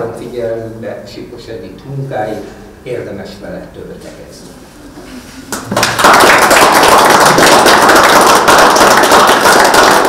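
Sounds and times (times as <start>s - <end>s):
audience applauding: 5.5s - 10.0s.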